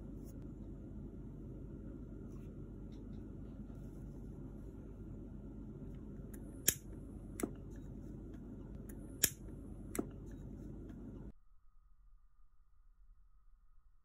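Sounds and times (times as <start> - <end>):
low background hum: 0.0 - 14.0
gas lighter click: 6.6 - 6.9, 9.2 - 9.4.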